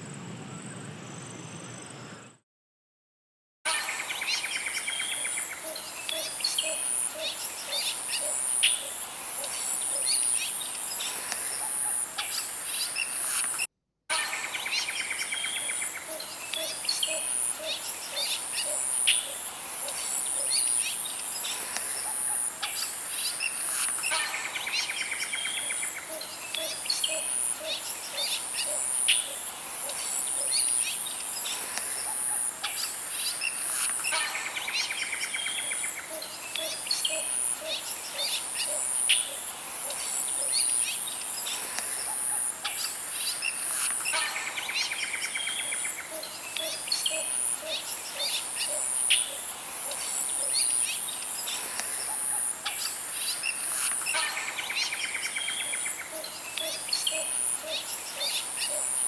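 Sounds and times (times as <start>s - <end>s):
high insect buzz: 14.4s - 55.4s.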